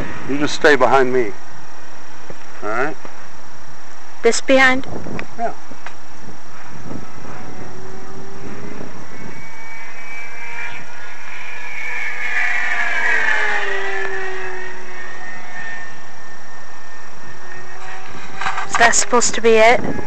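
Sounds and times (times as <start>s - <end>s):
model plane motor whining: 6.5s - 20.0s.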